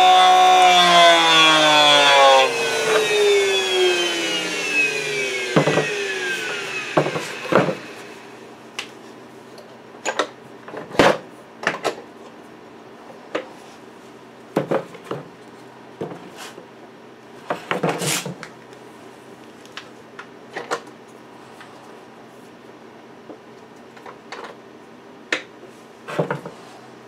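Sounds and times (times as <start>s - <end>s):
board bumping and scraping on wood: 5.5s - 6.0s, 6.9s - 8.0s, 26.1s - 26.6s.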